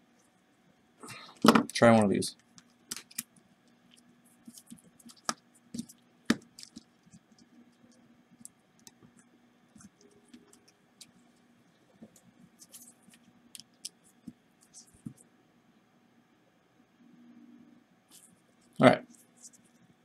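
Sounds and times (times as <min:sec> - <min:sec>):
faint steady hum: 0:00.0 - 0:20.0.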